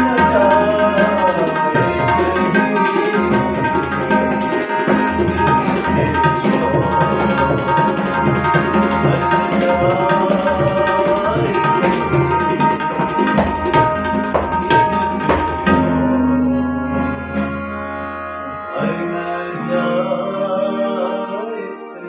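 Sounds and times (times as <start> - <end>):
man singing: 0.0 - 3.8, 4.4 - 13.0, 18.6 - 22.0
tabla drumming: 0.0 - 16.5
acoustic guitar: 15.2 - 22.0.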